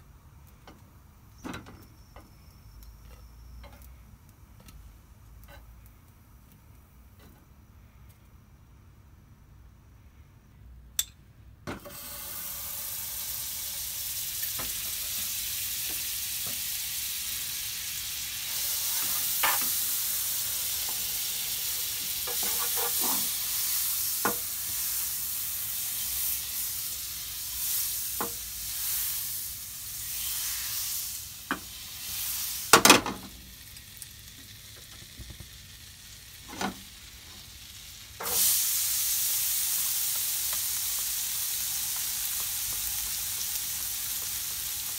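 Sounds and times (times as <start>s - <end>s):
butter sizzling in frying pan: 11.8s - 44.9s.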